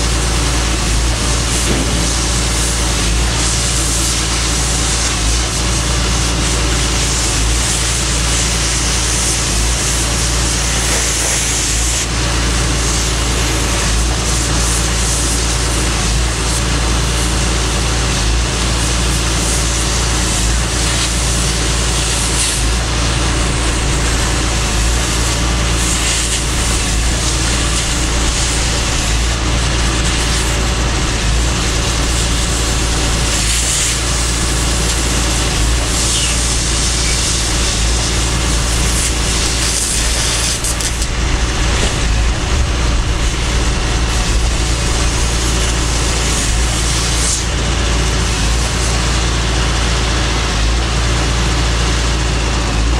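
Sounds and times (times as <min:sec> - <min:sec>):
low rumble: 0:00.0 - 0:05.3, 0:22.2 - 0:49.2
cutting torch hissing: 0:00.0 - 0:52.9.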